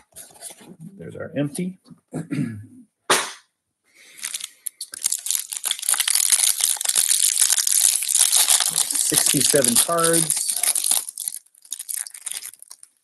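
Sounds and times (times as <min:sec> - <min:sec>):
sharp knock: 0:03.1 - 0:03.5
cellophane wrapper crinkling and tearing: 0:04.1 - 0:13.0.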